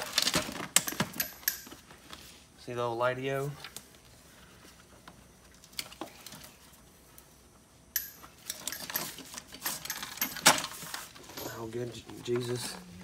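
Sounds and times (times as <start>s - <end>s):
parts clattering and scraping: 0.0s - 2.3s, 8.0s - 12.9s.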